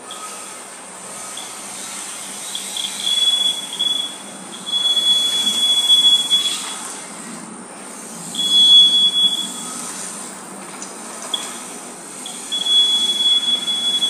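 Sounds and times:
high-pitched buzzer tone: 2.4 - 6.8, 8.3 - 9.8, 12.2 - 14.0.

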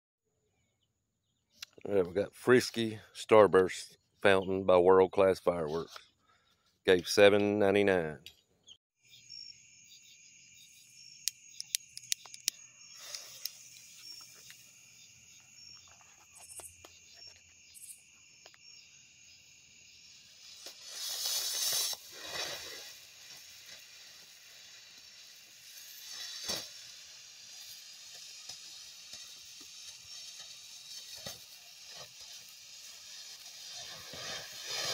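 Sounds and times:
crickets chirring: 9.0 - 34.9
firework fountain hissing: 10.4 - 34.9
lighter clicks: 11.2 - 13.6.

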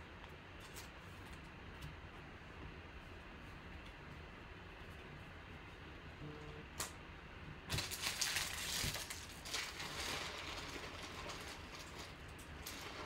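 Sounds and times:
card pack wrapper crinkling: 7.7 - 12.8.

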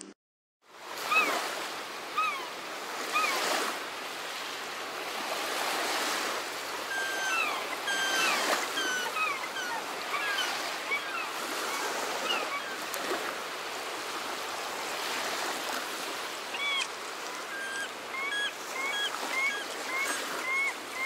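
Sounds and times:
bird whistling calls: 6.8 - 12.8, 16.5 - 21.0.

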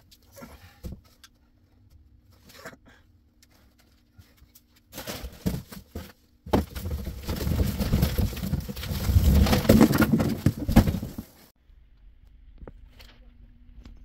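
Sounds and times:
cardboard scraping and rustling: 4.9 - 11.5
cardboard box knocking: 5.4 - 11.2.

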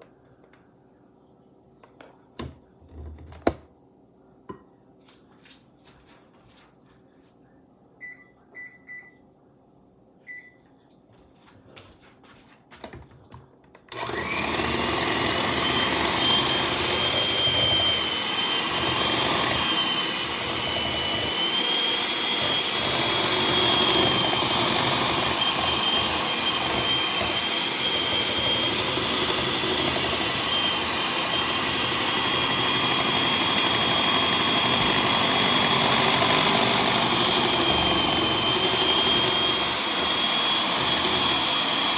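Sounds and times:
faint beeps and clicks: 7.9 - 9.4
electric hand mixer whining: 13.9 - 41.9.

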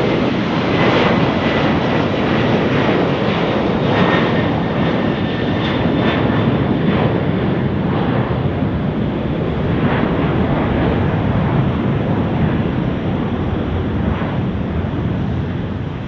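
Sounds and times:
jet engine roar: 0.0 - 16.0.

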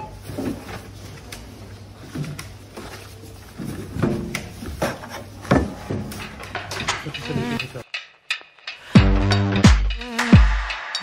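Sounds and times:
groceries knocking and clattering: 0.0 - 7.8.

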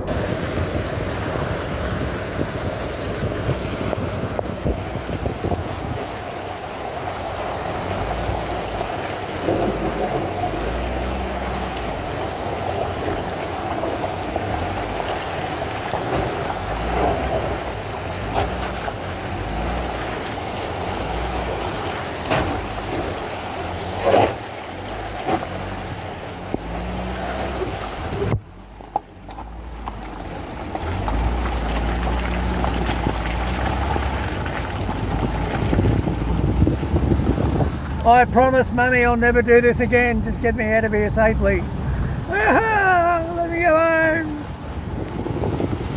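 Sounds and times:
vehicle engine and tyres: 0.0 - 45.9
wind and water noise: 0.0 - 45.9.

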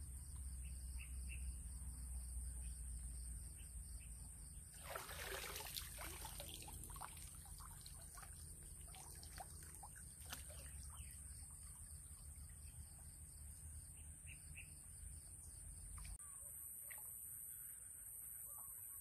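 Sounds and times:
water pouring off a body: 4.8 - 10.8
water drips and splashes: 4.8 - 12.7.

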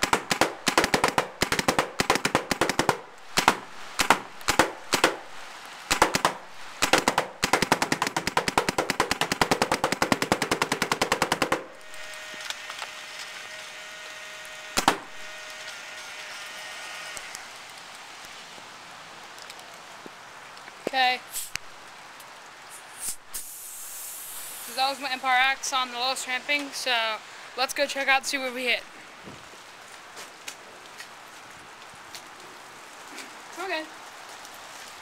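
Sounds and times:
paintball marker firing: 0.0 - 5.2, 5.9 - 12.1, 14.8 - 15.2
hard rain pattering: 0.0 - 14.2, 14.8 - 35.0.

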